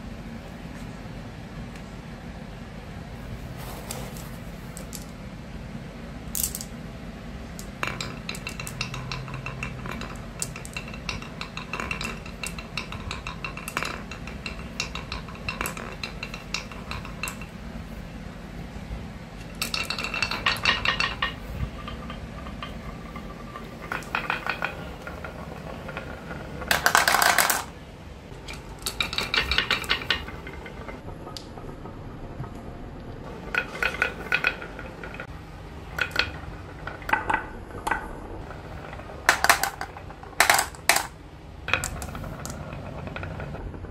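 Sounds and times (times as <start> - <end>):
marbles rolling on wooden tracks: 3.6 - 5.2, 6.3 - 6.8, 7.4 - 43.9
marbles clinking together: 7.6 - 17.6, 19.4 - 27.8, 35.9 - 43.6.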